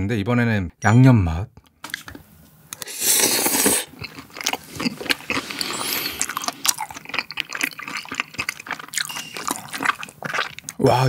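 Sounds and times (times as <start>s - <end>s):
close chewing mouth clicks: 3.2s - 10.8s.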